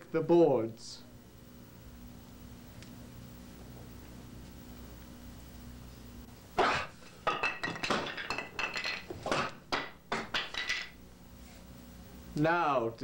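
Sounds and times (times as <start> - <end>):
strikes on wooden boards: 6.6 - 11.0.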